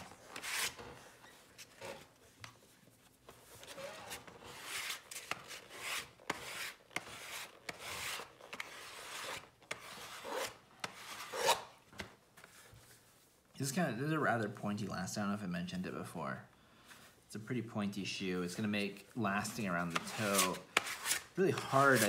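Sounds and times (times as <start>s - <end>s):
sanding block rasping on leather: 19.9s - 22.0s.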